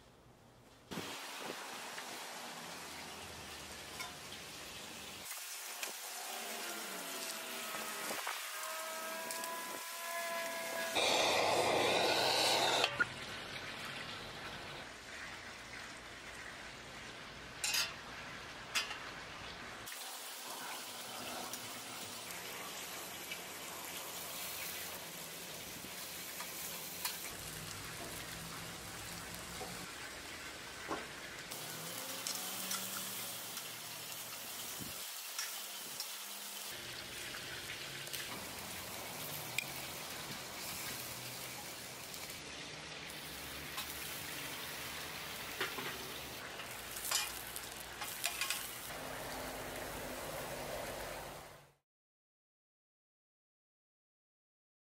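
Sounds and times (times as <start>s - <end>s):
meat sizzling on grill: 0.9s - 51.3s
loud rushing noise: 11.0s - 12.9s.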